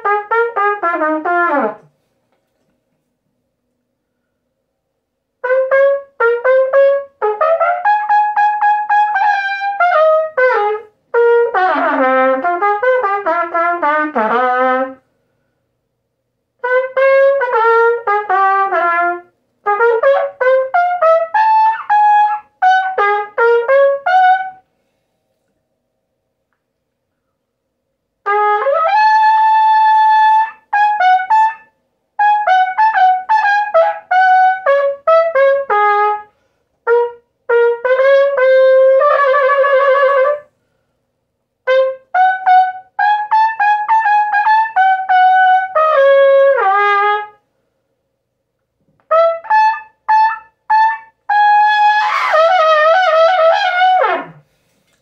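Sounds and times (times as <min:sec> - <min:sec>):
solo trumpet melody: 0:00.0 - 0:01.9, 0:05.4 - 0:15.0, 0:16.6 - 0:24.7, 0:28.2 - 0:40.6, 0:41.6 - 0:47.4, 0:49.0 - 0:54.6.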